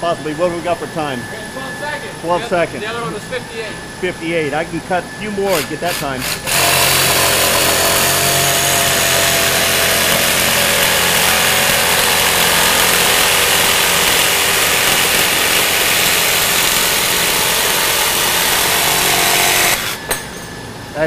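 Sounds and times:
jigsaw cutting metal: 0:05.5 - 0:20.4.

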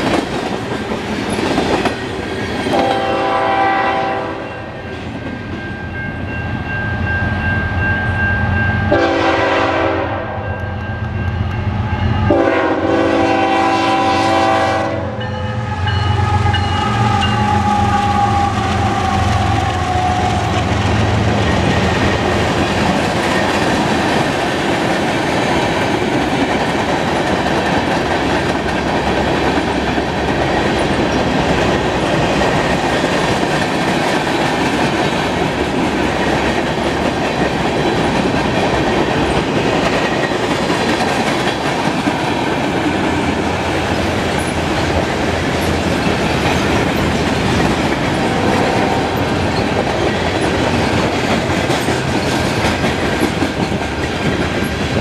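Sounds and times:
locomotive air horn blasts: 0:02.7 - 0:04.8, 0:08.9 - 0:10.5, 0:12.2 - 0:20.6.

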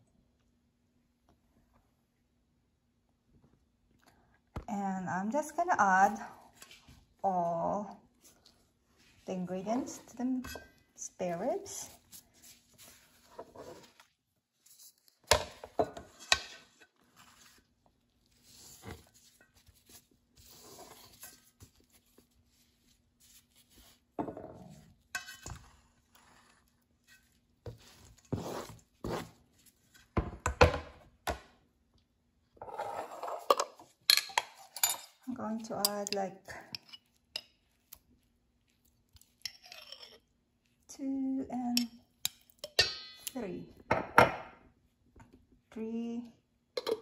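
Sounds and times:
food scraped off cutting board into bowl: 0:27.7 - 0:29.3.

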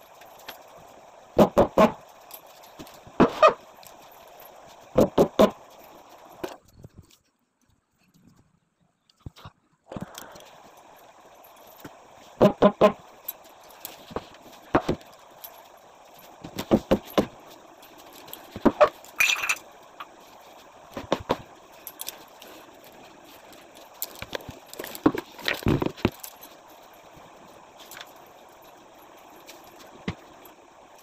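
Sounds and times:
objects knocking and clattering: 0:24.0 - 0:26.6.

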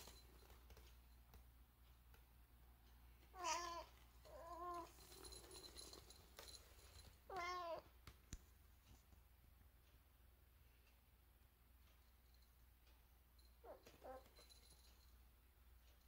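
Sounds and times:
cat chirping: 0:03.4 - 0:05.0.

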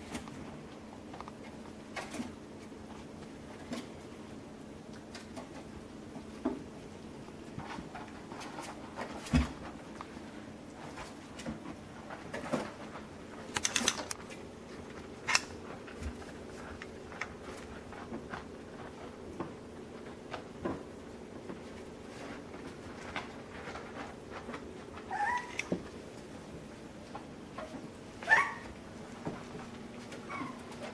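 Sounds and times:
paws tapping and scrabbling: 0:00.0 - 0:30.9
steady low hum: 0:00.0 - 0:30.9
puppy whining: 0:25.0 - 0:25.8, 0:28.2 - 0:28.8, 0:30.2 - 0:30.9.

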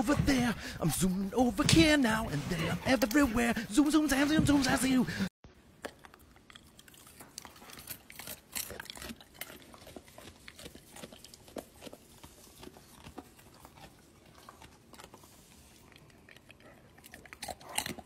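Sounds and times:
dog crunching carrot: 0:05.7 - 0:18.0.

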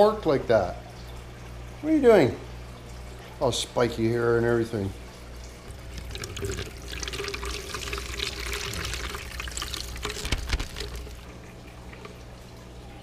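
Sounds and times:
water splashing into bucket: 0:05.7 - 0:12.2.

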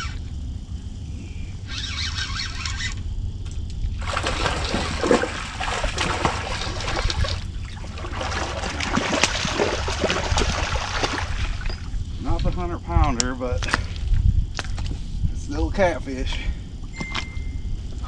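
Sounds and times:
fish splashing at surface: 0:04.0 - 0:11.7.

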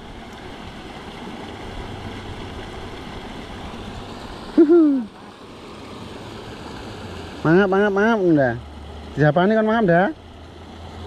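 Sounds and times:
man exclaiming ooh: 0:04.6 - 0:05.1.

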